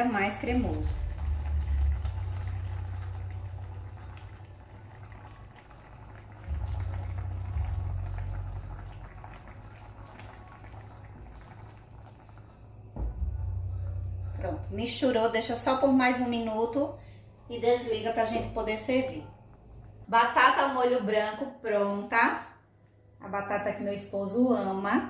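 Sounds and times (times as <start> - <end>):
low hum: 0.0 - 15.4
sauce simmering in frying pan: 0.4 - 13.0.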